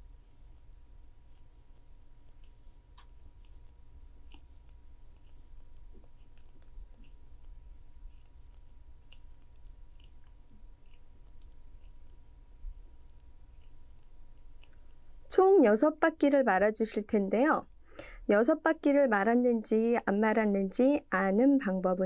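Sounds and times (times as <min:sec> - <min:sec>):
low steady hum: 0:00.0 - 0:22.0
craft wire clicking: 0:08.2 - 0:14.8.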